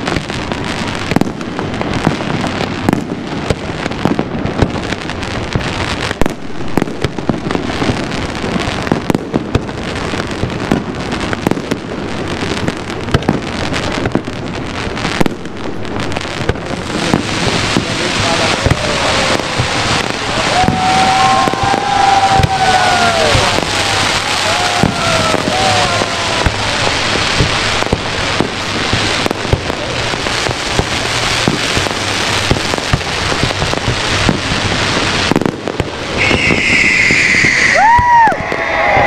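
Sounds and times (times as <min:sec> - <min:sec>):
crackling hiss of fireworks: 0:00.0 - 0:39.0
firework bangs: 0:00.0 - 0:39.0.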